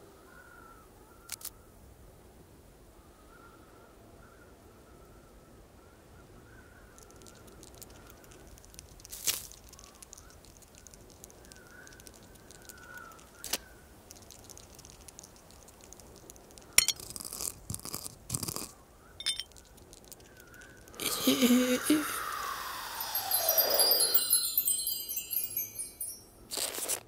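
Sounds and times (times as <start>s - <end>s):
faint whistling wind: 18.8s - 26.4s.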